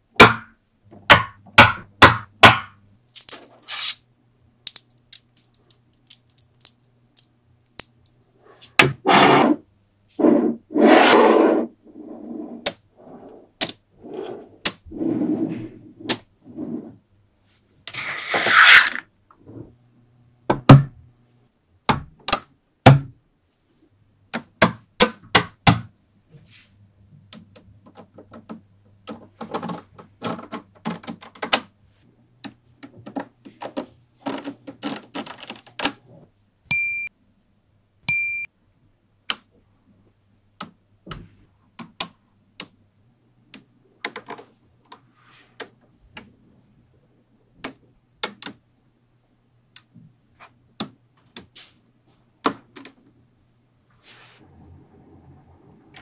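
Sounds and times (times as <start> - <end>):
magnetic balls clicking together: 4.7 - 8.2.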